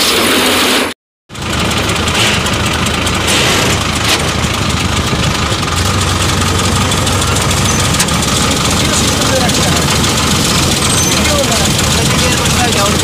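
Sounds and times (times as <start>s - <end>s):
tractor and combine harvester running: 0.0s - 13.0s.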